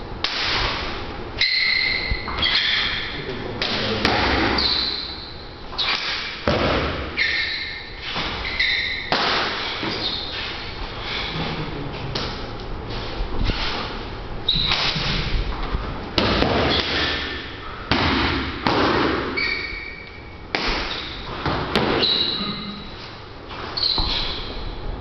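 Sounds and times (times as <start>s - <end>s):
short high squeaks: 1.4s - 3.2s, 4.5s - 6.4s, 7.2s - 11.3s, 14.5s - 15.0s, 19.4s - 21.3s, 22.0s - 23.0s, 23.6s - 24.7s.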